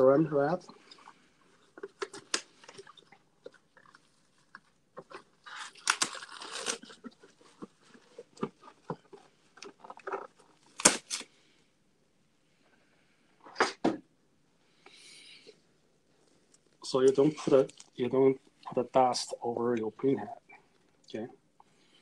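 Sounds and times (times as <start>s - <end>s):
plastic cling wrap crinkling: 0.9s - 11.3s.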